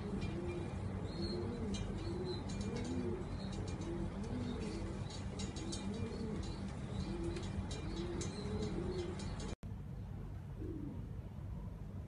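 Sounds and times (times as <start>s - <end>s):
pigeons cooing: 0.0s - 9.6s.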